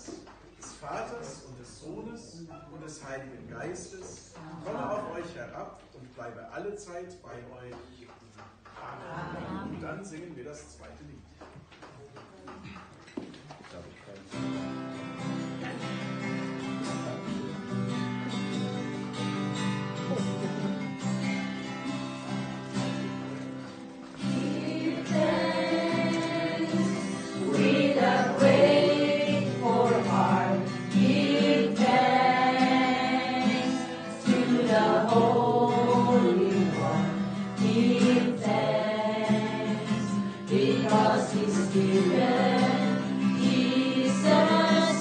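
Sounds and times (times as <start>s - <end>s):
group singing a hymn: 9.0s - 9.8s, 22.8s - 45.0s
strummed acoustic guitar: 14.2s - 45.0s.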